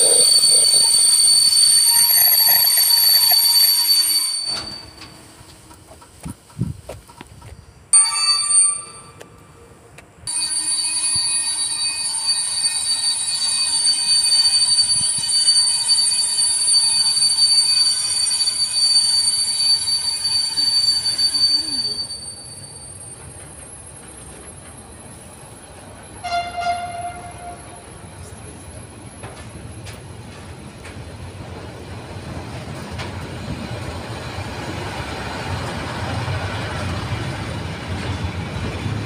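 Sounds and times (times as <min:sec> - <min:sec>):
train wheels squealing: 0:00.0 - 0:05.4, 0:07.9 - 0:09.2, 0:10.3 - 0:29.0
train wagons rolling: 0:00.0 - 0:39.0.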